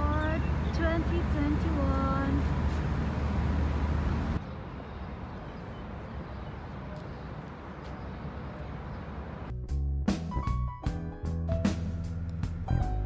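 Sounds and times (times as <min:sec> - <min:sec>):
city rumble with faint hiss: 0:00.0 - 0:09.5
music: 0:09.5 - 0:13.0.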